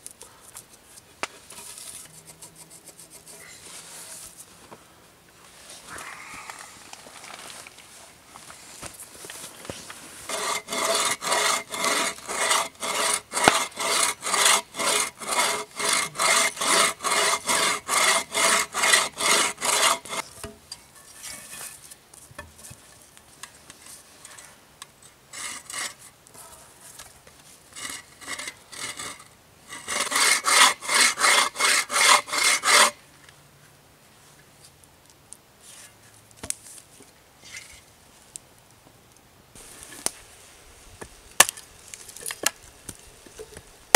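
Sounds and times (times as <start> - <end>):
hand saw cutting log: 10.2 - 20.3, 25.3 - 26.1, 27.8 - 33.0.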